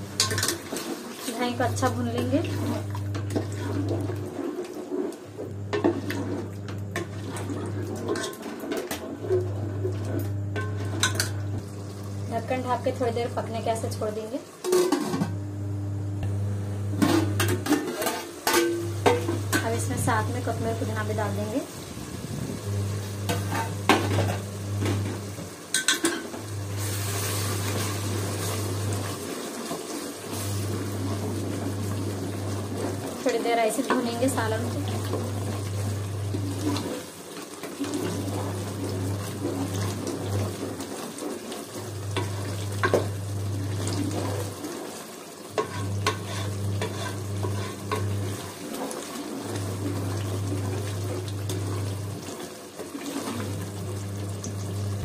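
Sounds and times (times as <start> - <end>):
gravy sizzling in a metal pot: 0.0 - 15.2, 17.0 - 55.0
wooden spatula scraping a pot: 37.8 - 51.0
spatula scraping thick sauce in pot: 45.6 - 49.0.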